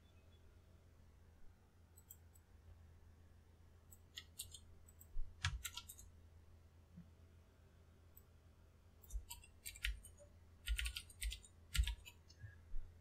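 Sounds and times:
faint low hum: 0.0 - 13.0
mouse clicking: 2.0 - 2.4, 3.9 - 6.1, 9.0 - 12.4
keyboard key presses: 4.0 - 6.1, 9.0 - 12.3.

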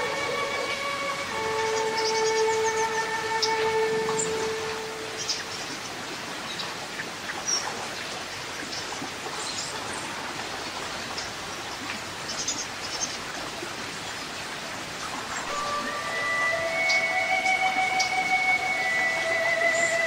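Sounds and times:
stream rushing over rocks: 0.0 - 20.0
high bird chirps: 1.4 - 5.7.

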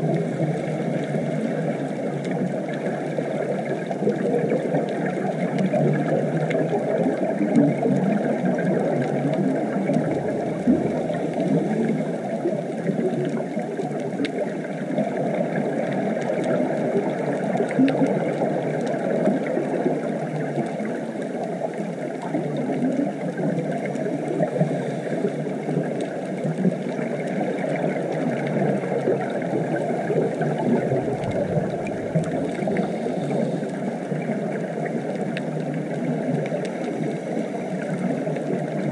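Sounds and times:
muffled underwater rushing: 0.0 - 38.9
faint clicks: 22.2 - 38.9.

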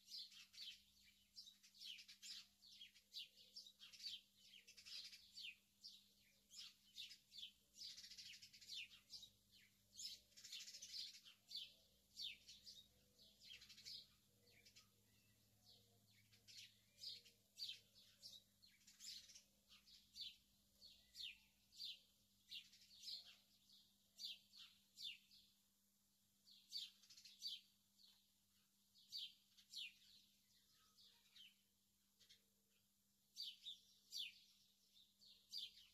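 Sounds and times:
small birds chirping: 0.0 - 35.9.

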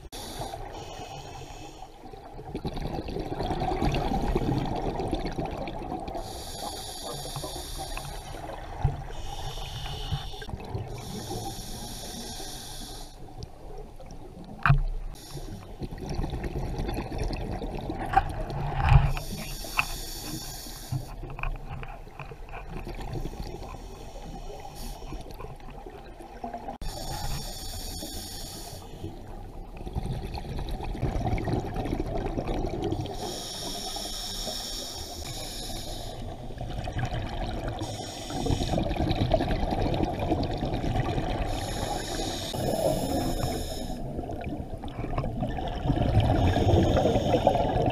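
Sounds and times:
low rumble of water: 0.0 - 12.2, 13.2 - 19.7, 21.0 - 27.8, 28.4 - 34.6, 35.2 - 47.9
exhaled bubbles bursting underwater: 2.2 - 6.2, 15.8 - 18.8, 29.8 - 33.2, 36.6 - 41.7, 44.0 - 47.9.

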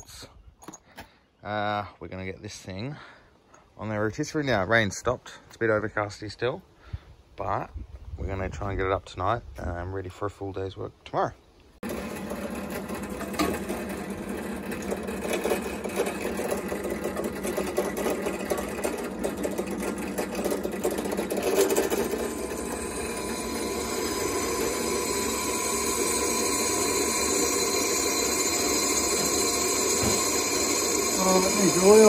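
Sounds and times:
drill bit cutting steel whine: 11.8 - 32.0
drill press running: 11.8 - 32.0.

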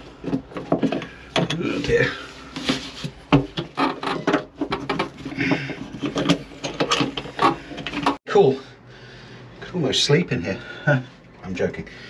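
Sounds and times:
knocks and scrapes in a locker: 0.0 - 8.2.

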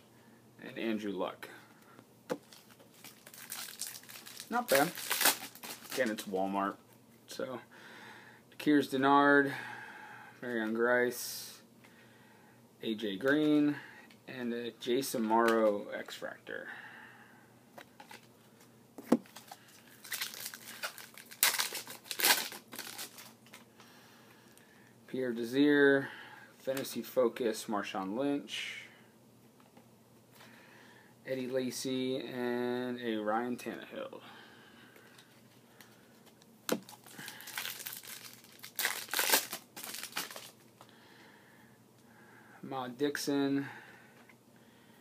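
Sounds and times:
wrapper tearing click: 2.4 - 6.1, 19.3 - 23.6, 36.7 - 40.6
wrapper crinkling: 2.4 - 6.4, 19.3 - 23.6, 36.2 - 40.6.

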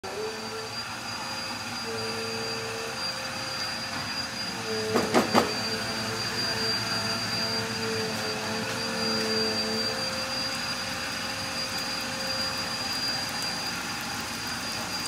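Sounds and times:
rushing hum with whine: 0.1 - 15.0
chicken sizzling in a frying pan: 4.7 - 15.0.

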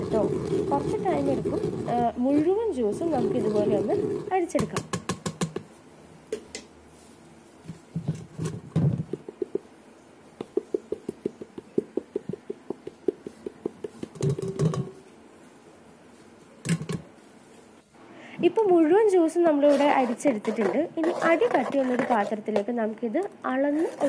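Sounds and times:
knocks and scrapes: 7.6 - 9.7, 10.4 - 15.0, 19.7 - 22.7.

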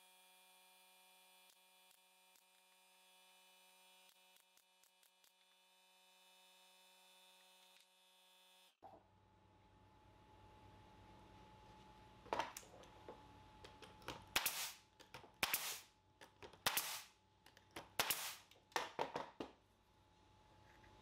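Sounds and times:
nail gun firing: 14.3 - 14.8, 15.4 - 15.9, 16.6 - 17.1, 17.8 - 18.5.

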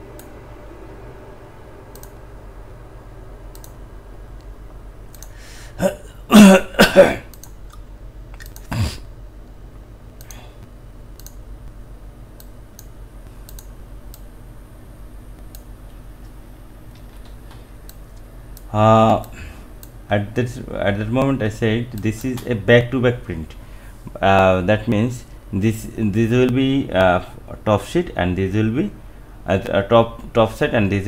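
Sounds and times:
steady low hum: 0.0 - 31.0
computer mouse clicks: 1.9 - 2.2, 3.5 - 3.8, 5.1 - 5.4, 7.3 - 7.8, 8.4 - 8.7, 11.1 - 11.4, 12.4 - 14.3, 15.3 - 20.0
person clearing throat: 5.8 - 7.3, 8.6 - 9.1.

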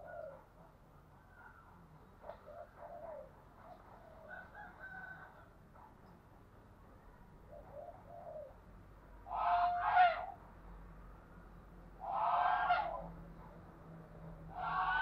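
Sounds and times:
dove cooing: 0.0 - 0.6, 2.2 - 4.4, 7.5 - 8.6.

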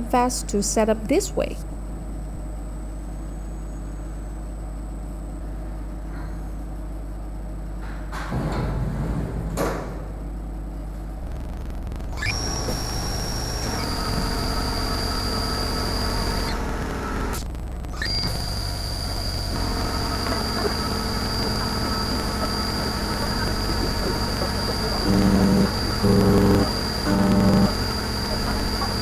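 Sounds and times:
machine hum: 0.0 - 29.0
spindle high whine: 11.1 - 29.0.

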